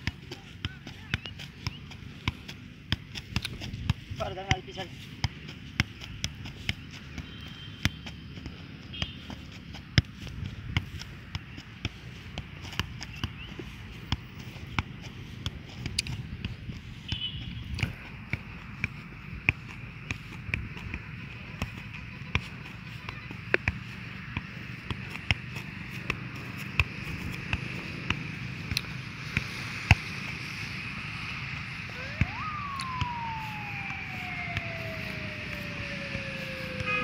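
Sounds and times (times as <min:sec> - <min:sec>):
football thuds: 0:00.0 - 0:30.1
siren-like sliding tone: 0:31.8 - 0:37.0.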